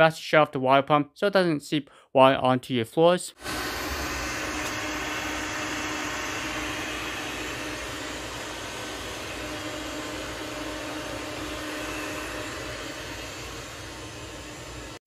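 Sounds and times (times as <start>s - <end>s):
robot vacuum whirring: 3.4s - 15.0s.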